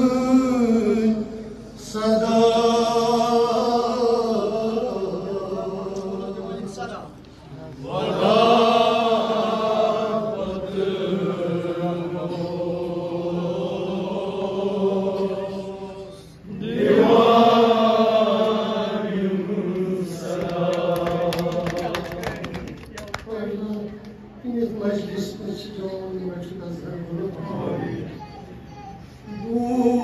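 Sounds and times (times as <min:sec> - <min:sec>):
man chanting through a microphone: 0:29.3 - 0:30.0.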